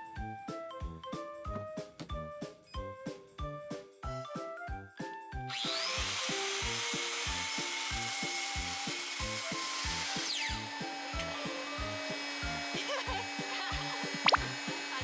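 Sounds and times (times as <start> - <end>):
background music with steady beat: 0.0 - 15.0
circular saw cutting wood: 5.5 - 15.0
dust extractor running: 5.5 - 15.0.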